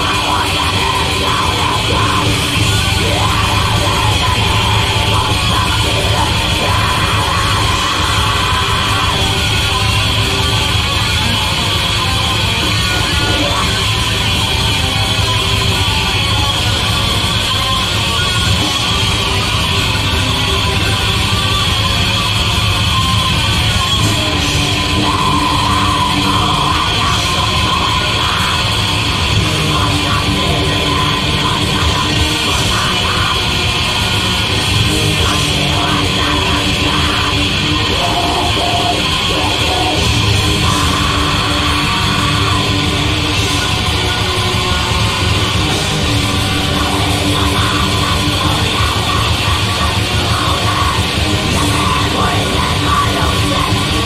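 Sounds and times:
distorted electric guitars: 0.0 - 54.0
drums: 0.0 - 54.0.

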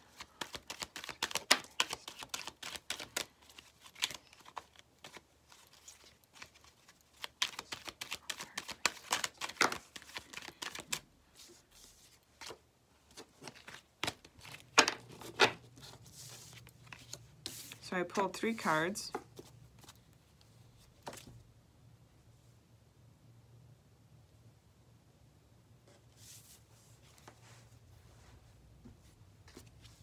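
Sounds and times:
cards being shuffled: 0.0 - 17.8.

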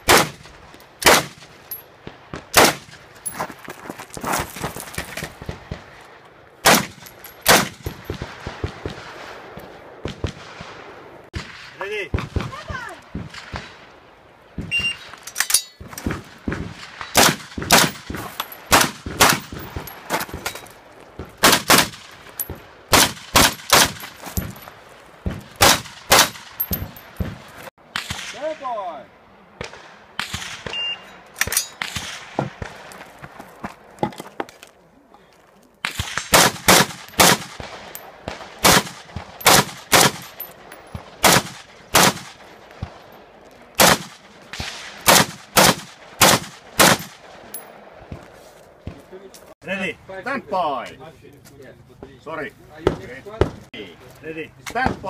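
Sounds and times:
rifle firing rapid shots: 0.0 - 1.4, 6.6 - 9.1, 17.2 - 19.8, 21.4 - 22.1, 22.9 - 24.0, 25.6 - 26.6, 35.9 - 40.4, 41.2 - 42.4, 43.8 - 47.3.

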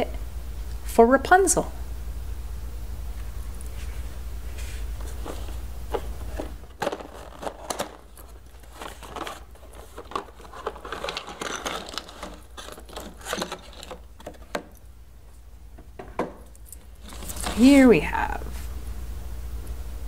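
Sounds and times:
crinkling: 4.6 - 14.8, 16.4 - 18.1
plastic pieces clicking and tapping: 5.9 - 14.8.

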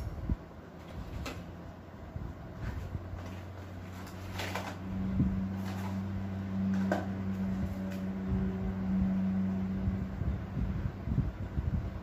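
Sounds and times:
steady low hum: 0.0 - 12.0
cardboard packaging rustling: 2.6 - 8.0.

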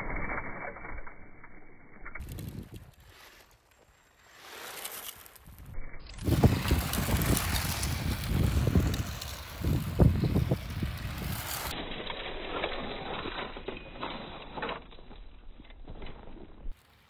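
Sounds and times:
rc truck crunching over gravel: 2.1 - 17.0
wind on microphone: 5.5 - 11.7.

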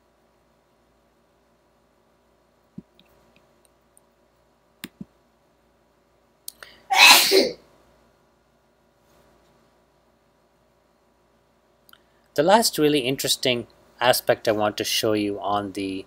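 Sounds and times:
person sneezing: 6.9 - 7.6.

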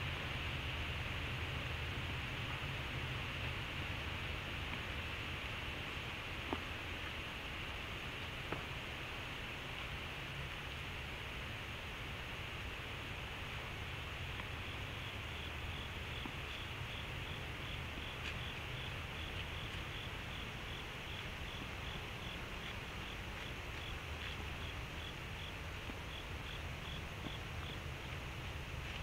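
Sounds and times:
microphone hiss: 0.0 - 29.0
insect chirping: 13.5 - 29.0.

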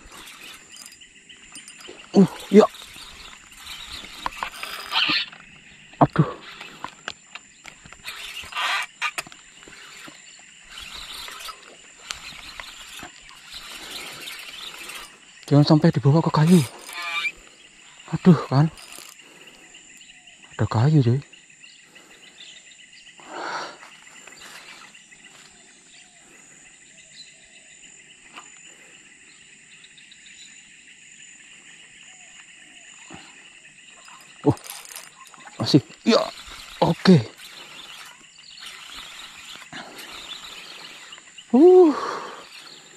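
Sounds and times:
insects droning: 0.0 - 42.9
fishing reel handling clicks: 2.7 - 5.5, 6.5 - 15.5, 18.8 - 19.2, 34.0 - 41.1.

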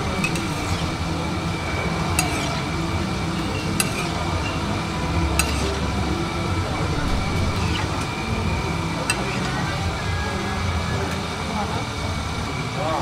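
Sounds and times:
spatula clinking on griddle: 0.0 - 6.4, 7.4 - 8.3, 9.0 - 9.7
steady low hum: 0.0 - 13.0.

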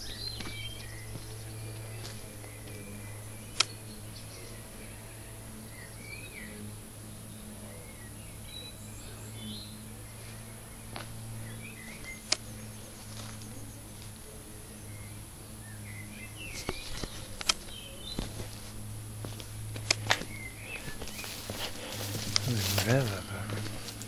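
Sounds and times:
birds chirping: 0.0 - 24.0
steady low hum: 0.0 - 24.0
sharp clicks: 16.6 - 18.3, 19.7 - 20.3.

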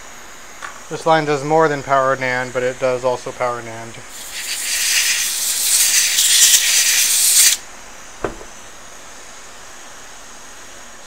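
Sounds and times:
pressurized gas hissing: 4.1 - 7.6.

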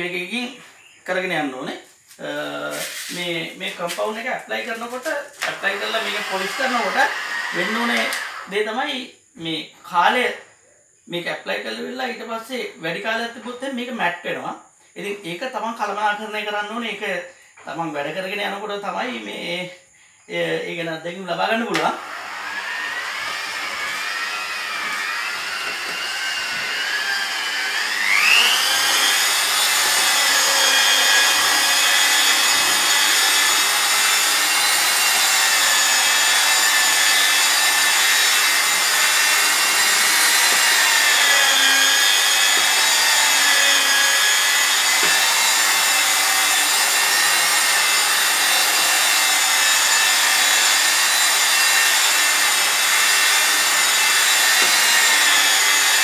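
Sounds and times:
car polisher whining: 4.8 - 8.5, 21.8 - 56.0.

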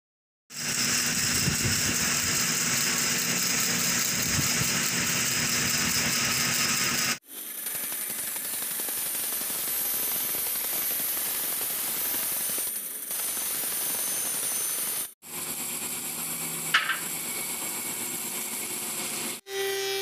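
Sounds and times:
woodworking machine cutting board: 0.5 - 20.0
sharp knock: 16.7 - 17.1.

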